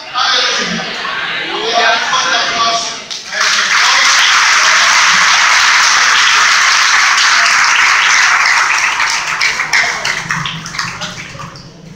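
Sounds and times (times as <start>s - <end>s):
congregation applauding: 3.1s - 11.7s.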